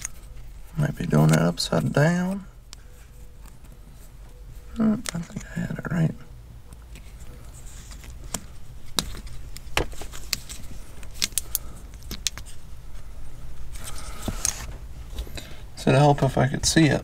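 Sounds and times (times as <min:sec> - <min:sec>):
steady low hum: 0:00.0 - 0:17.0
plastic connectors clicking: 0:08.2 - 0:12.5.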